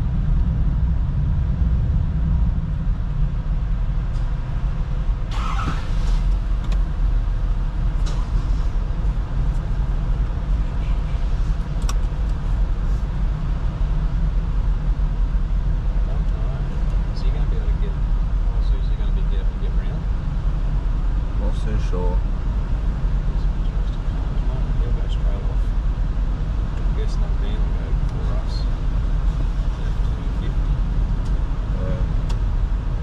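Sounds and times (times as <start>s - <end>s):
vehicle engine idling: 0.0s - 33.0s.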